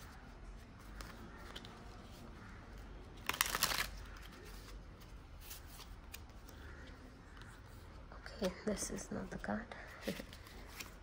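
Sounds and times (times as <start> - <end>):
cards rustling: 0.0 - 9.0, 9.8 - 11.0
cards riffle shuffled: 3.2 - 6.8.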